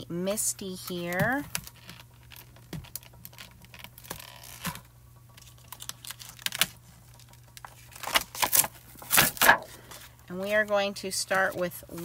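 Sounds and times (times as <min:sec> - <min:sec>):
plastic clicks and crinkles: 0:00.8 - 0:10.0.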